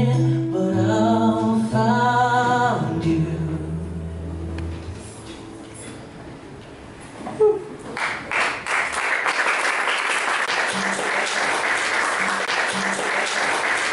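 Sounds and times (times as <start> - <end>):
audience applauding: 7.9 - 13.9.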